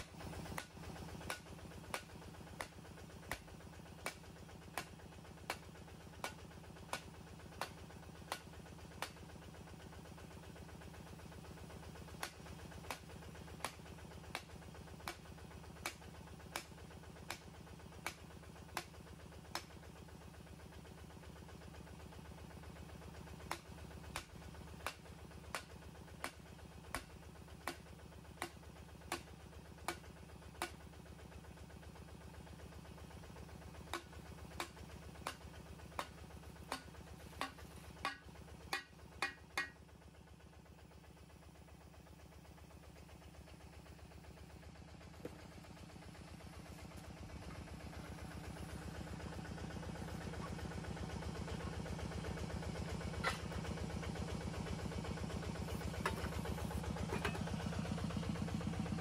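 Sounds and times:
drilling rig engine running: 0:44.2 - 0:59.0.

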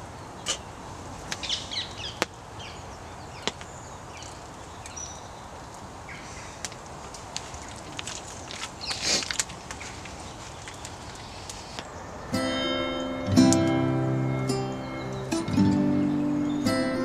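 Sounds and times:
small birds chirping: 0:00.0 - 0:06.8, 0:07.6 - 0:17.0
steady fire hiss: 0:00.0 - 0:12.4
campfire cracks: 0:03.4 - 0:12.0, 0:13.4 - 0:13.8.

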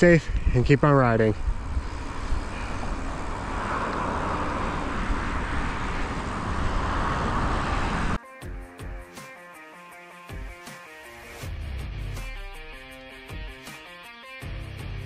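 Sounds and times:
wind buffeting a camera: 0:00.1 - 0:08.2
tyres rolling on asphalt: 0:01.8 - 0:08.2
electric guitar music: 0:08.2 - 0:15.0.

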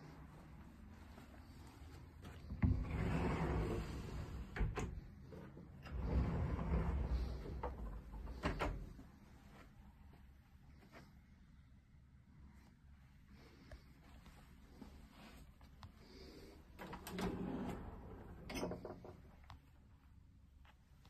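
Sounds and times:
drawer sliding out and back: 0:02.6 - 0:08.9, 0:16.8 - 0:19.1
doors sliding open: 0:02.6 - 0:09.0, 0:16.8 - 0:19.2.

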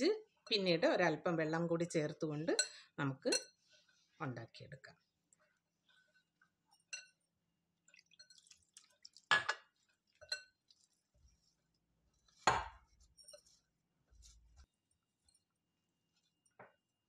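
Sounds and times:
glass bowl clinking: 0:06.7 - 0:07.2, 0:08.0 - 0:10.9.

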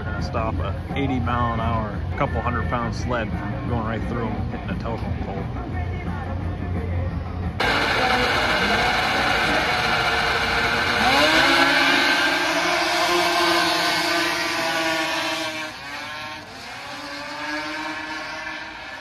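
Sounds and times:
racing snowmobiles accelerating: 0:07.6 - 0:19.0.

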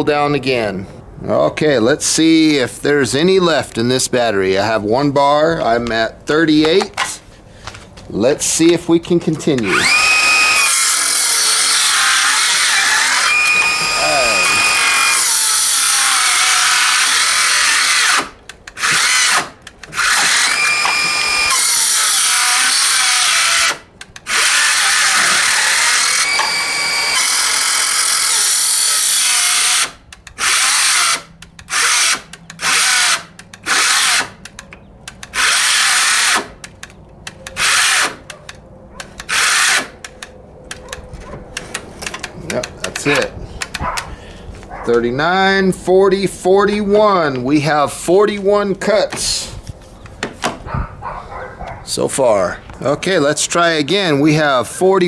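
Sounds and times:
circular saw cutting wood: 0:09.5 - 0:34.4, 0:35.3 - 0:36.6, 0:37.6 - 0:38.2, 0:39.1 - 0:40.0.

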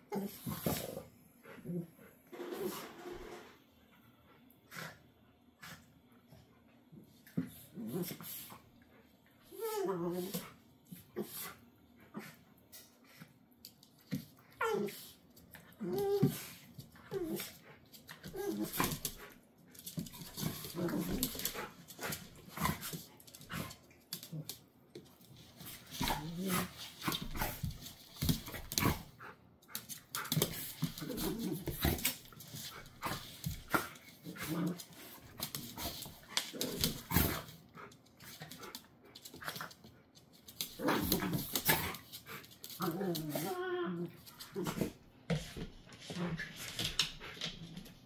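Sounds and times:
dogs growling: 0:20.2 - 0:24.6, 0:30.2 - 0:37.5.

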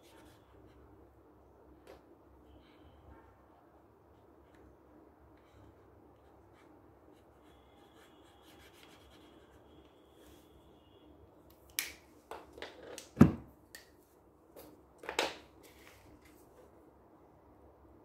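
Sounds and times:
thud on table: 0:13.2 - 0:13.5.

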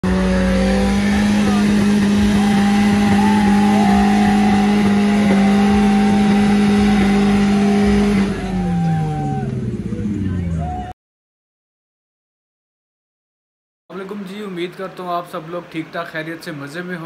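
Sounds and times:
car engine revving: 0:00.0 - 0:10.9.

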